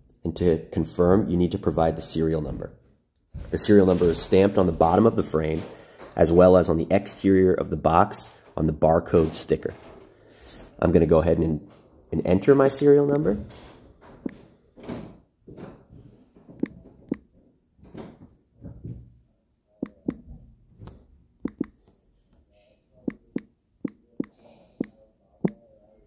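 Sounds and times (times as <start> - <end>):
fingers tapping touchscreen: 16.6 - 17.3, 19.8 - 20.2, 21.4 - 21.9, 23.0 - 25.6.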